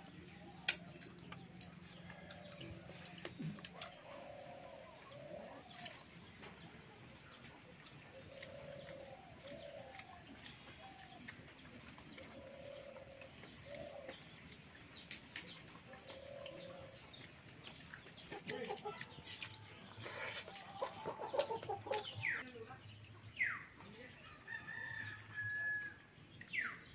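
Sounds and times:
dove cooing faintly: 0.0 - 14.6, 15.4 - 17.4.

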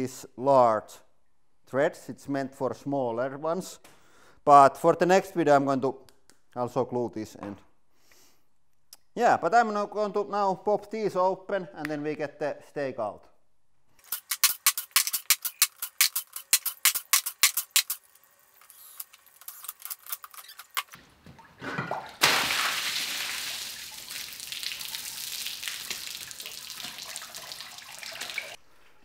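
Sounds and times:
water gushing and splashing: 21.5 - 28.6.

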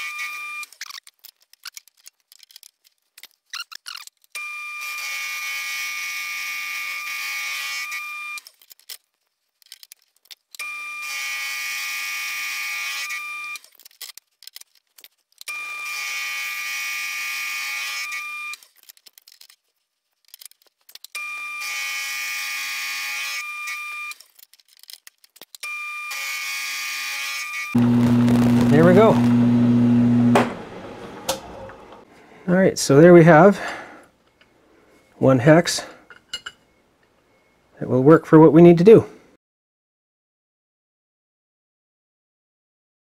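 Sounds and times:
small clicks: 8.4 - 10.7, 18.5 - 21.2, 23.7 - 25.7
end mill cutting steel whine: 27.8 - 32.0.

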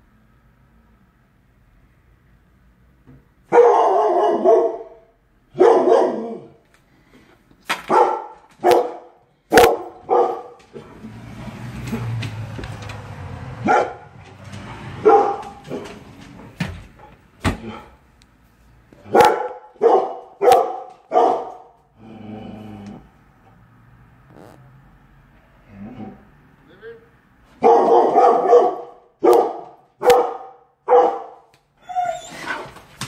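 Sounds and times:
dog barking: 3.5 - 6.6, 7.8 - 10.6, 13.6 - 14.2, 15.0 - 15.9, 19.0 - 21.8, 27.6 - 31.5.

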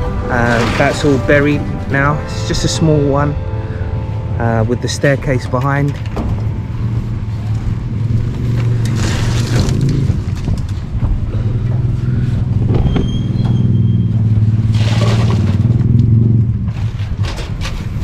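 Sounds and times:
harsh scraping noise: 0.0 - 3.5, 4.4 - 12.0, 12.7 - 15.8.

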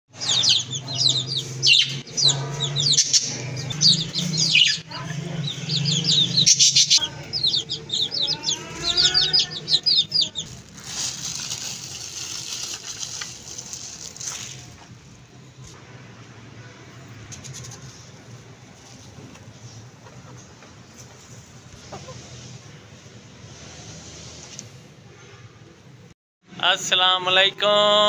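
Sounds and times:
small birds chirping: 0.1 - 13.0.

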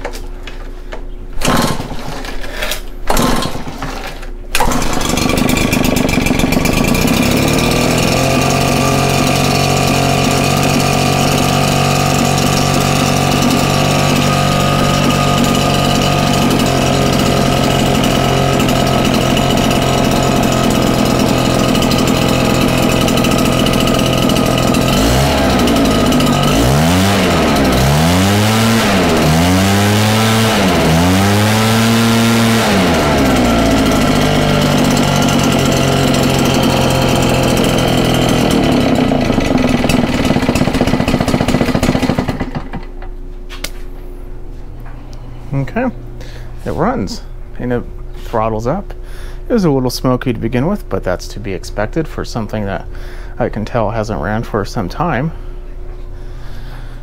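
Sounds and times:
two-stroke engine idling and revving: 1.4 - 1.9, 3.1 - 3.7, 4.6 - 43.0
starter cord pulls: 1.4 - 43.6.

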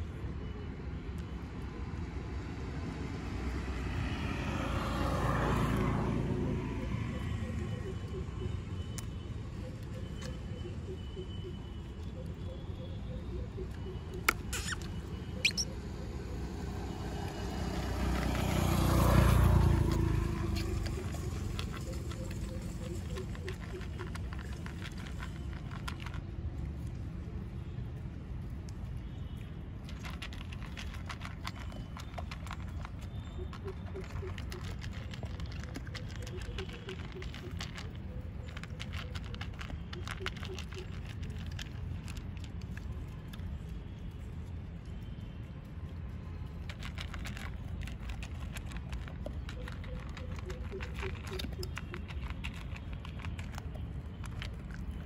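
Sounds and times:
vehicle passing: 2.4 - 8.8, 14.6 - 26.2, 29.9 - 43.4
high rising chirp: 14.6 - 15.8
dog crunching dry food: 17.7 - 26.3, 29.9 - 43.5, 46.6 - 55.0.

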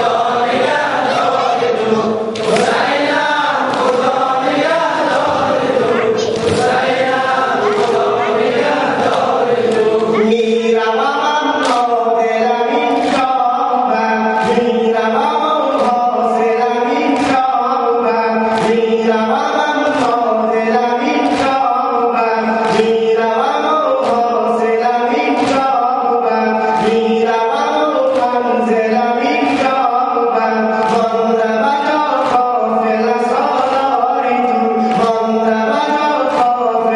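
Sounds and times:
men chanting in unison: 0.0 - 36.9
hands slapping chest: 2.3 - 2.8.

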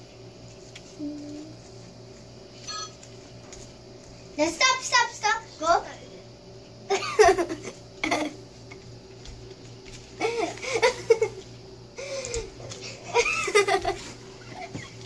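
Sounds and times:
faint steady hum: 0.0 - 15.0
giggling and laughter: 6.9 - 8.4, 10.2 - 11.4, 13.0 - 15.0.

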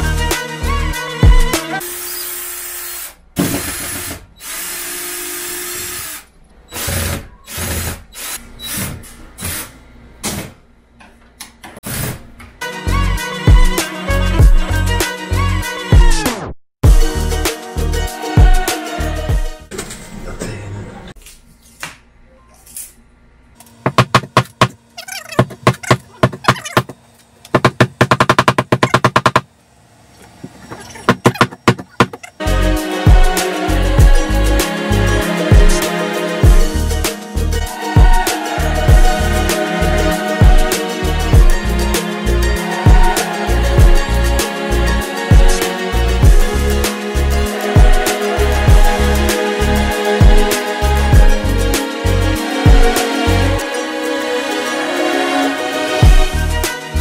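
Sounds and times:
drill driving screws into metal: 1.9 - 9.7
hammer striking wood: 23.9 - 24.8, 27.5 - 29.5, 31.1 - 32.2.

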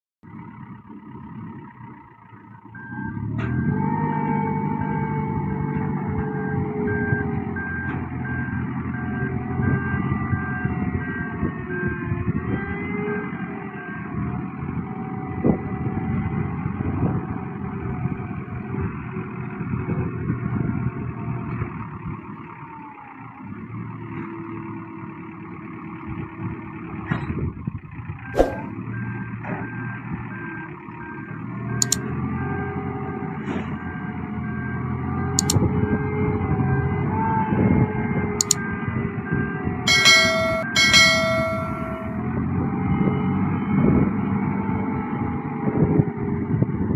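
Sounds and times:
diesel engine under load: 0.2 - 46.9
motion alarm beeping: 39.9 - 42.1.

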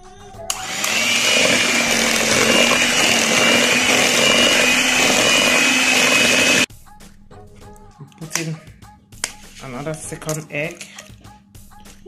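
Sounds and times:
electric hand mixer running: 0.5 - 6.7.

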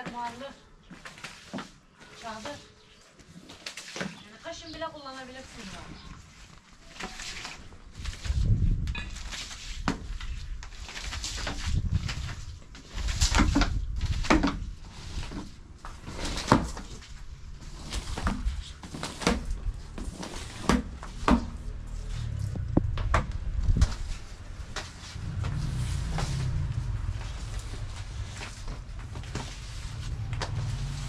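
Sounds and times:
low rumble: 21.5 - 31.0.

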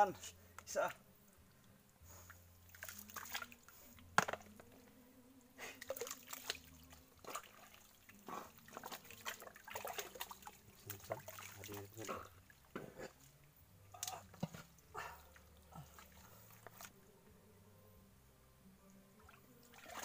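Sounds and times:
wet splashes and squelches in mud: 2.7 - 3.7, 5.7 - 13.2, 13.9 - 17.0, 19.3 - 20.0.

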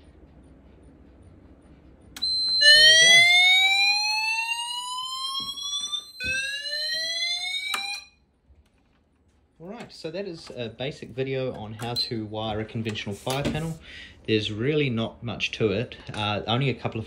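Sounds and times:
steady high buzzer beep: 2.2 - 8.1
rising sweep alarm tone: 2.2 - 8.2.

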